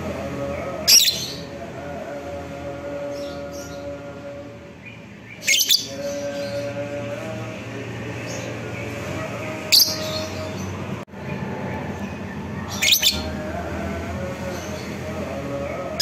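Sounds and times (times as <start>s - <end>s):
steady background noise: 0.0s - 16.0s
bird shrill squawks: 12.8s - 13.3s.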